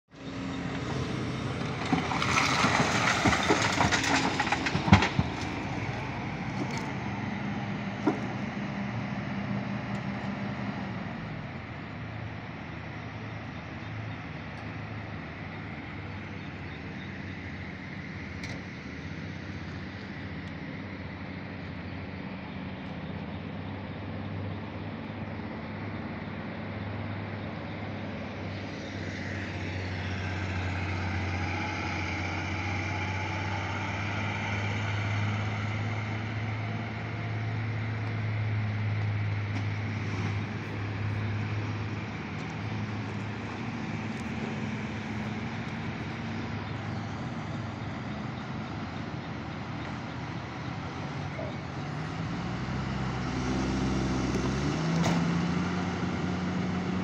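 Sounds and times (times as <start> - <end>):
diesel engines running: 0.1 - 57.0
rock clattering into truck body: 1.9 - 6.0.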